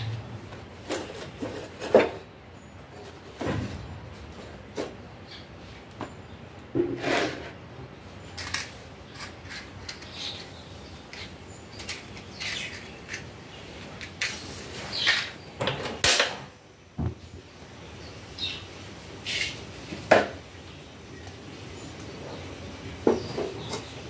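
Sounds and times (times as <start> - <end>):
clicks and scrapes: 8.4 - 15.4.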